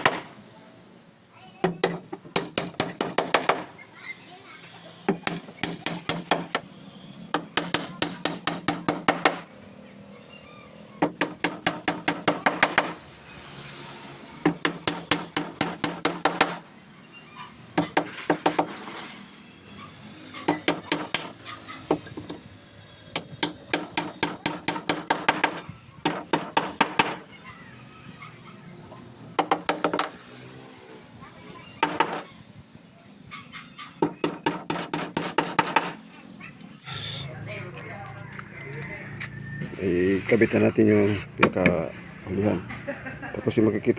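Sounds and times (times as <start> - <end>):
hammer driving nails into wood: 7.3 - 9.5, 14.4 - 16.6, 23.2 - 27.2, 34.0 - 36.0.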